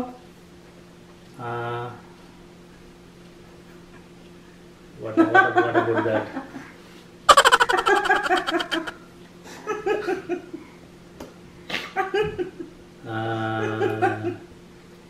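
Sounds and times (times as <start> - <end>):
people laughing and giggling: 7.3 - 8.9.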